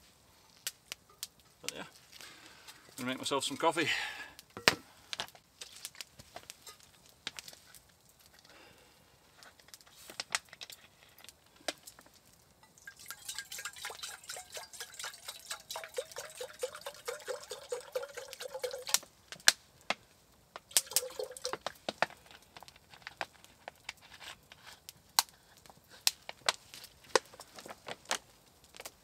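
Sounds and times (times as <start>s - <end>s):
water pouring into metal tin: 12.6s - 19.1s, 20.7s - 21.8s
water glugging from plastic bottle: 12.8s - 19.0s, 20.7s - 21.7s.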